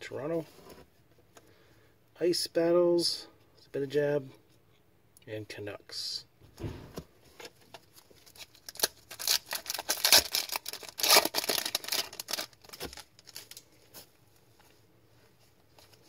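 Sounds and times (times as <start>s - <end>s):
foil wrapper tearing and crinkling: 8.2s - 13.6s.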